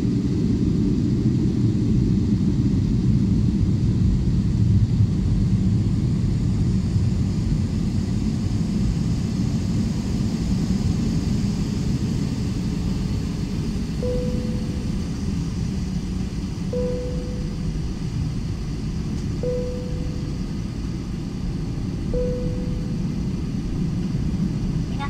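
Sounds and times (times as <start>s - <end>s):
airliner engines rumbling: 0.0s - 25.0s.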